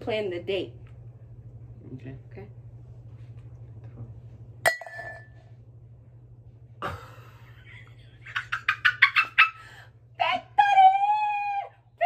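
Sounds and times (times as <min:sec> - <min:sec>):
woman laughing: 0:06.8 - 0:10.5.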